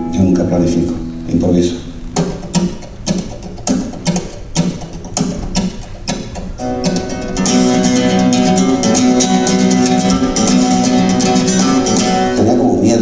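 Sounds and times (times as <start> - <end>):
flamenco guitar music: 0.0 - 13.0.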